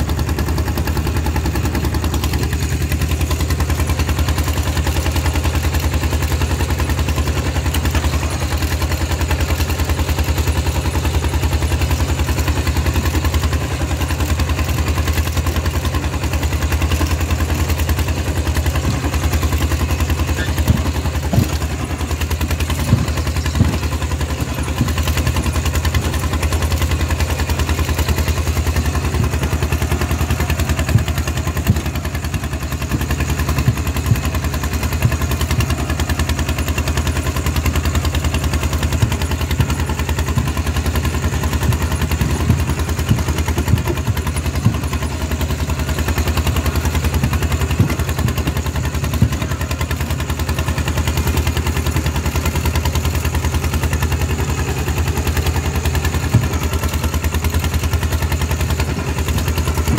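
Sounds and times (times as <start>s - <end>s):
diesel engine exhaust beat: 0.0s - 59.9s
exhaust cracks: 17.2s - 52.0s.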